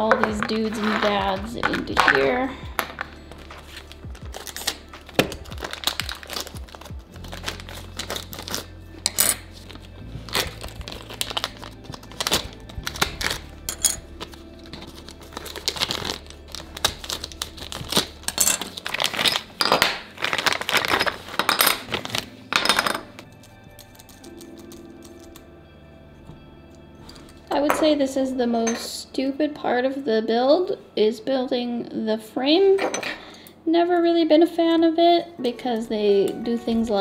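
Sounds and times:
plastic bags crinkling: 0.0 - 8.8, 9.4 - 23.3
background music with bass: 0.0 - 27.9.

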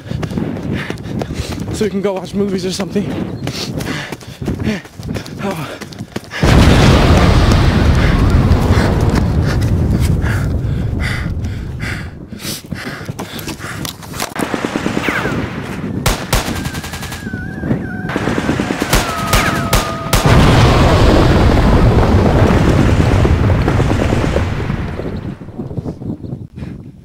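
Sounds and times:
gunfire shots and bursts: 14.2 - 17.2, 18.1 - 20.5.

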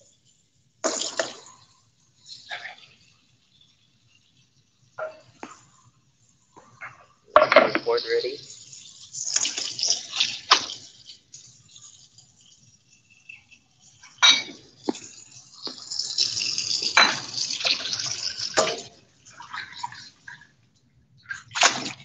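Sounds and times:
dishes clinking: 7.3 - 8.1, 14.1 - 15.1, 16.9 - 17.4, 18.6 - 19.0.

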